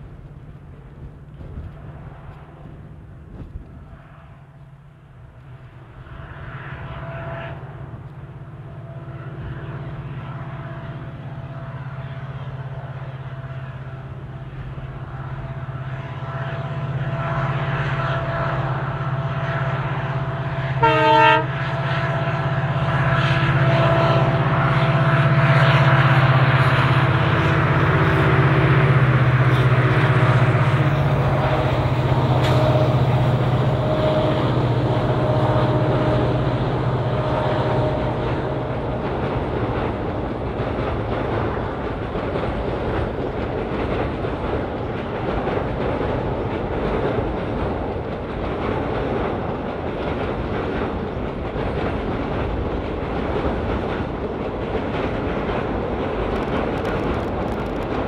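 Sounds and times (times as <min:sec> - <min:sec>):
diesel locomotive engine running: 0:00.0 - 0:58.0
train wheels clattering on track: 0:00.0 - 0:58.0
train horn blast: 0:01.4 - 0:40.6.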